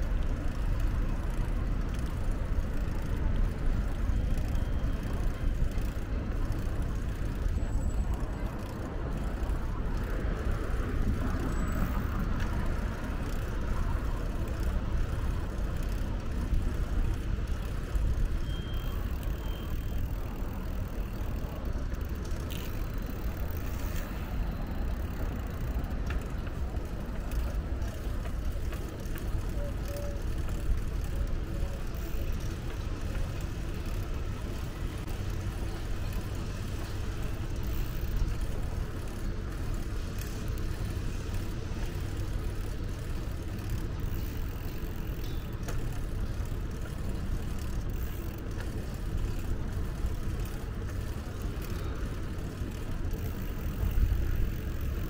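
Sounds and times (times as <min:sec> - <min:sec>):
road traffic rumble: 0:00.0 - 0:55.0
faint clicks: 0:24.8 - 0:34.1, 0:41.3 - 0:55.0.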